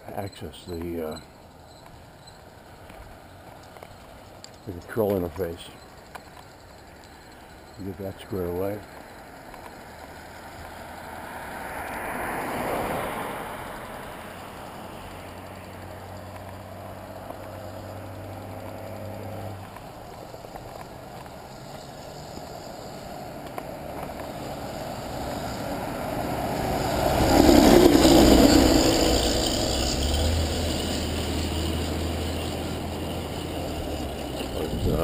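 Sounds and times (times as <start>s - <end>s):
truck passing: 0.0s - 35.0s.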